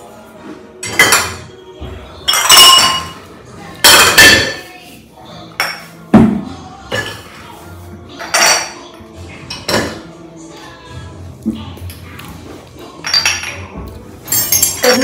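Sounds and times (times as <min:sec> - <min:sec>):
soft background music: 0:00.0 - 0:15.0
glass jars clinking: 0:02.3 - 0:03.2, 0:13.0 - 0:15.0.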